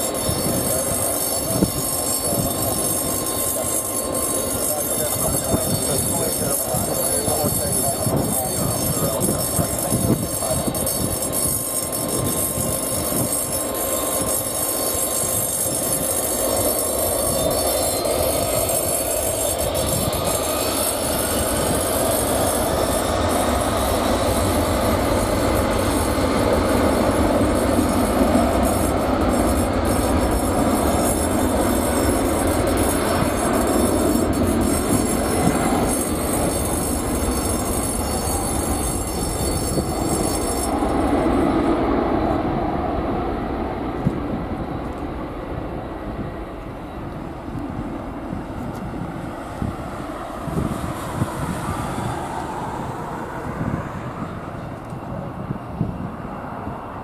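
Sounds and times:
jet engines spooling up: 0.0s - 57.0s.

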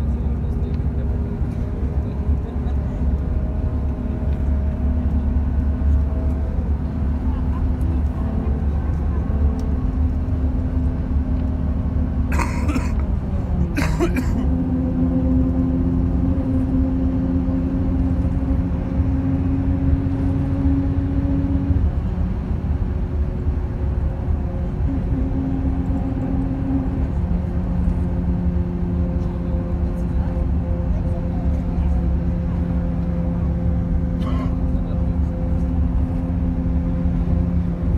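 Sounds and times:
road rumble: 0.0s - 37.9s
vehicle engine hum: 0.0s - 37.9s.

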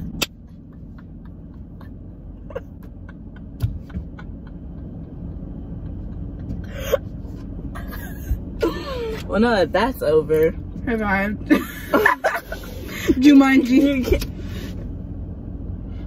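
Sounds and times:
low cabin rumble: 0.0s - 16.0s
stifled laugh: 0.4s - 9.1s.

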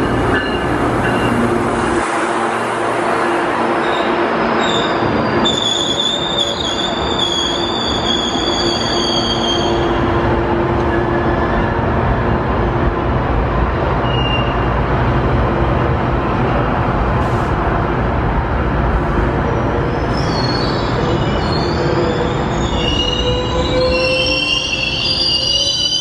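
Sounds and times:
train coaches rumbling on rails: 0.0s - 26.0s
high wheel squeal: 3.8s - 10.0s, 19.8s - 26.0s.

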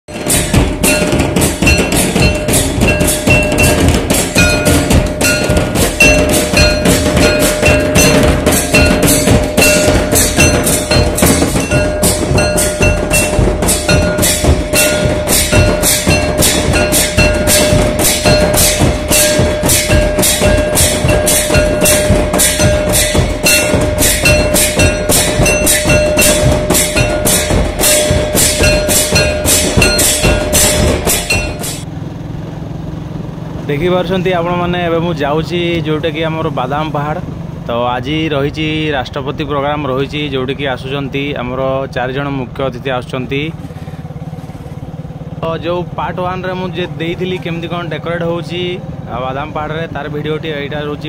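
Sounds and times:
folk drums beaten: 0.1s - 31.9s
short ringing notes: 0.1s - 31.9s
steady high tone: 0.1s - 31.9s.

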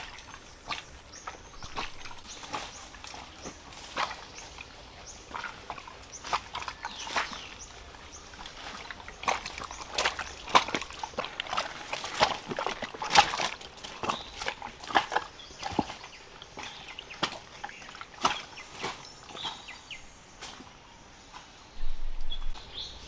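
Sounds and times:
plants brushing and rustling: 0.0s - 16.8s
footsteps on stones and leaves: 0.0s - 20.7s.

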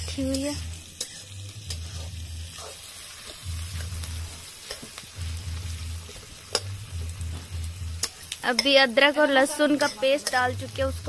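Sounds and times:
metal spatula scraping pan: 0.0s - 5.0s
onions sizzling in oil: 0.0s - 11.0s.

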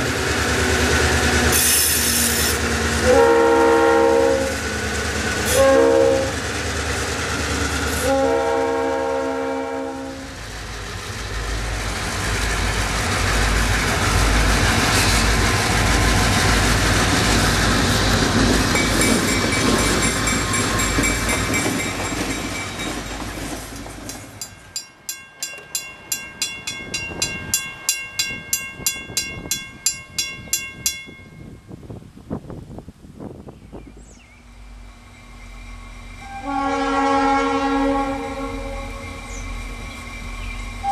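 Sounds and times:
train wheels on rails: 0.0s - 32.1s, 33.9s - 40.9s
diesel locomotives passing: 0.0s - 40.9s
railroad crossing bell ringing: 18.7s - 23.4s, 24.2s - 32.0s.

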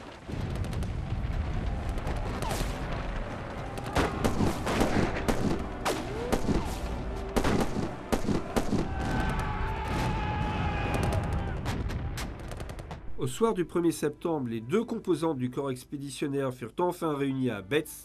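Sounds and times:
low rumble: 0.0s - 5.8s
rifle fire: 3.8s - 9.4s.

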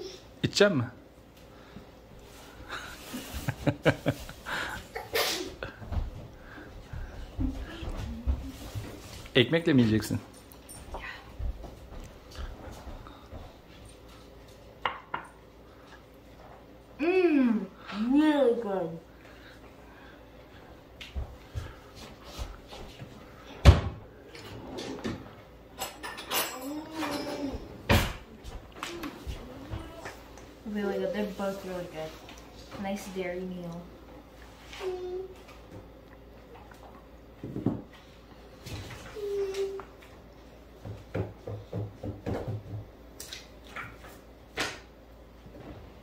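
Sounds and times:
sharp kitchen knocks: 23.6s - 24.0s
child's voice: 26.6s - 27.7s, 28.8s - 30.2s, 34.7s - 35.4s, 39.2s - 39.9s.

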